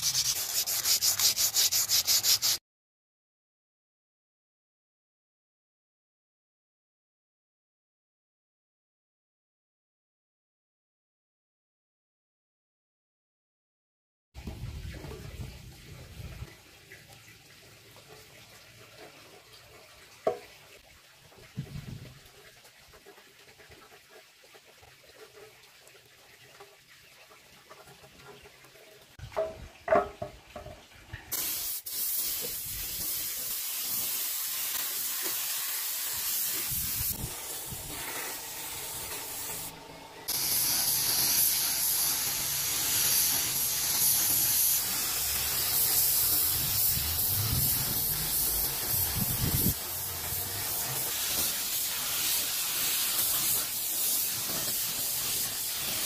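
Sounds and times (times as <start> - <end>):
steady spraying hiss: 0.0 - 2.6, 31.3 - 56.0.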